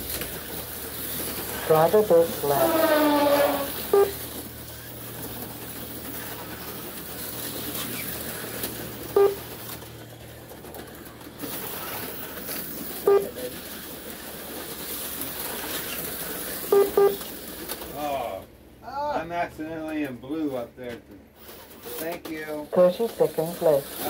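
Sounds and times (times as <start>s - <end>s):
slot cars whirring on track: 0.0s - 18.3s, 22.7s - 24.0s
short pitched beep: 9.2s - 9.4s, 13.1s - 13.5s, 16.7s - 17.2s.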